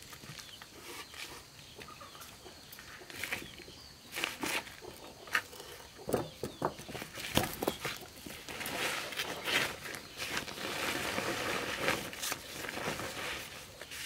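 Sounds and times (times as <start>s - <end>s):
chickens clucking: 0.4s - 10.2s.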